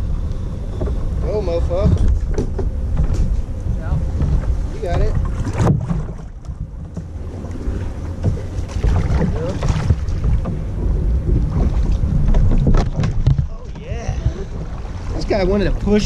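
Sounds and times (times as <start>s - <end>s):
wind rumble on microphone: 0.0s - 16.0s
knocks and scrapes on kayak hull: 0.6s - 16.0s.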